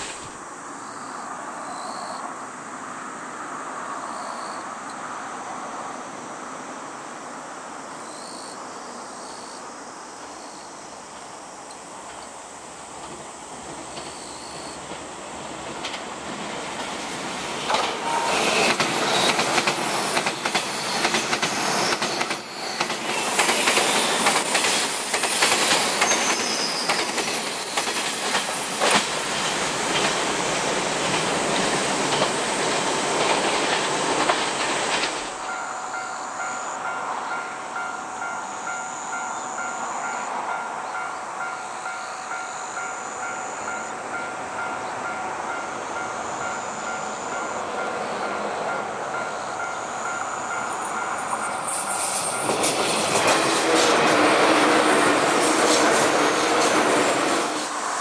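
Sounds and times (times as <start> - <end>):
train wheels clickety-clack: 11.7 - 35.5, 45.8 - 58.0
high wheel squeal: 18.0 - 33.4, 50.8 - 58.0.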